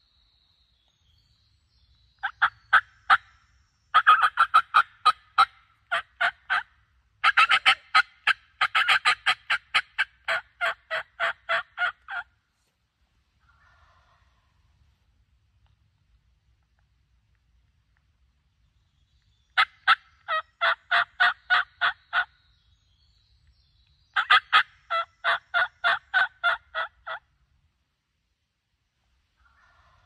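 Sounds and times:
turkey call yelps: 0:02.2 - 0:03.2, 0:03.9 - 0:12.3, 0:19.6 - 0:22.3, 0:24.2 - 0:27.2.

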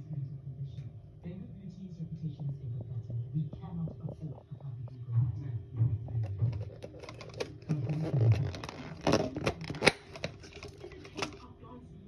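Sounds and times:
plastic clicks and knocks: 0:06.2 - 0:11.4
plastic cups being handled: 0:06.2 - 0:11.5.

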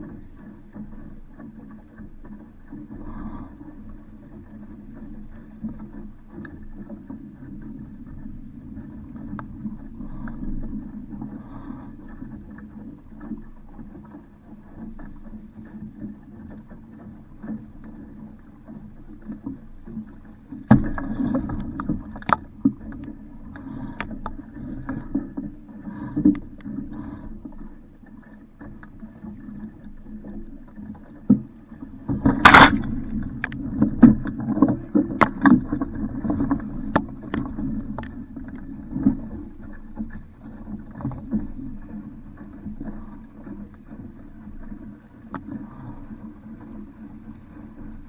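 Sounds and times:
water and wind around hull: 0:00.0 - 0:48.0
sharp knocks from boat: 0:20.6 - 0:22.8, 0:32.1 - 0:38.1.

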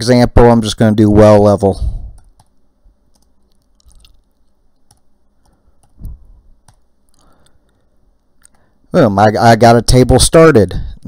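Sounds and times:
keystrokes on computer keyboard: 0:02.2 - 0:07.8.

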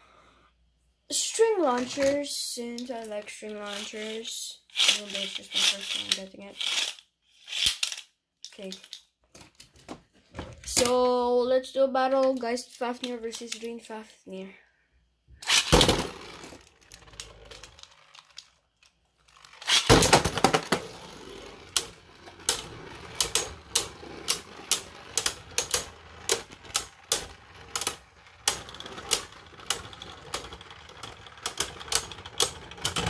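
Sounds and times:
spinning tops clicking together: 0:04.7 - 0:08.1, 0:15.4 - 0:18.6, 0:19.3 - 0:33.0
spinning tops launched: 0:15.4 - 0:18.4, 0:19.3 - 0:33.0.

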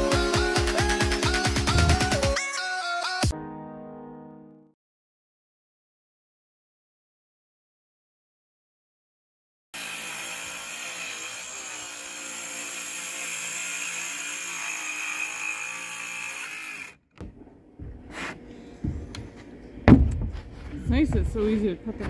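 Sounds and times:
circular saw cutting wood: 0:09.8 - 0:17.0.

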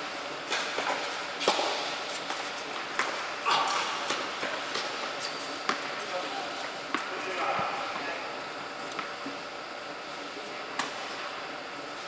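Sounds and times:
tennis balls struck by rackets: 0:00.5 - 0:02.0
tennis balls bouncing on hard court: 0:00.5 - 0:04.9, 0:05.6 - 0:06.0, 0:06.9 - 0:07.7.

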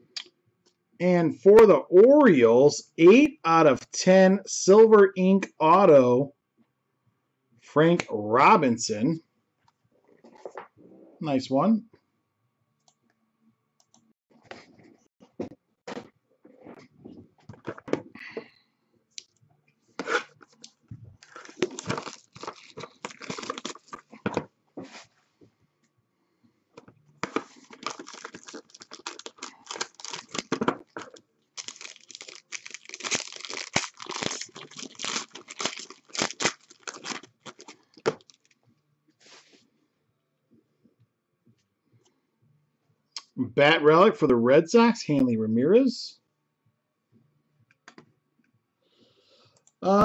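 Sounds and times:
cardboard box tearing and crinkling: 0:21.2 - 0:24.0, 0:27.4 - 0:38.4.

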